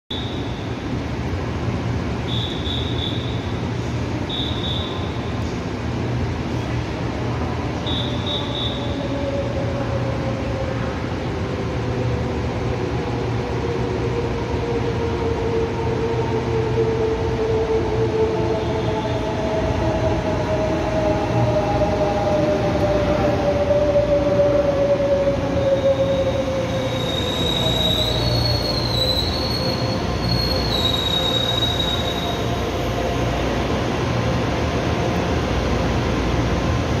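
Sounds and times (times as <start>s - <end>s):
high-pitched brake squeal: 4.3s - 5.3s, 7.9s - 9.1s, 25.6s - 33.0s.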